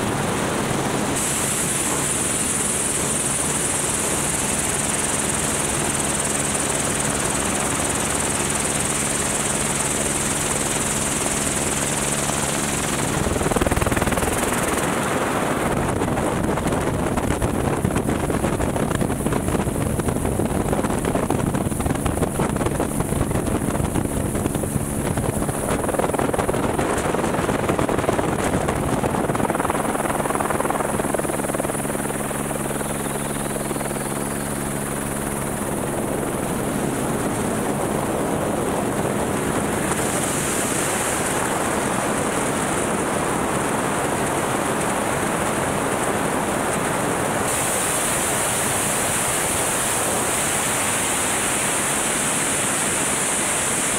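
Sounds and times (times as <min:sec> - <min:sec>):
helicopter rotor hum: 0:00.0 - 0:53.9
turbine whine: 0:00.0 - 0:53.9.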